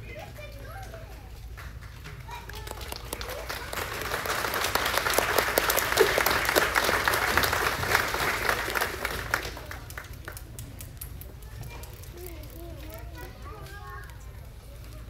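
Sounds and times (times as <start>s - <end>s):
audience applauding: 1.5s - 11.2s.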